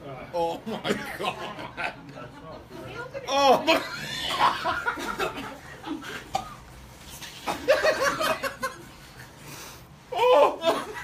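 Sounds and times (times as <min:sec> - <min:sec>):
group of people laughing: 0:03.6 - 0:06.3, 0:07.5 - 0:09.3.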